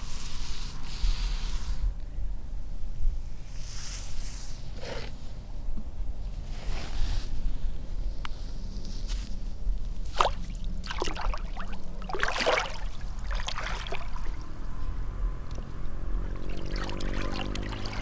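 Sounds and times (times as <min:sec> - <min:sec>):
feet splashing in shallow water: 0:10.1 - 0:14.6, 0:16.3 - 0:18.0
low rumble: 0:10.4 - 0:18.0.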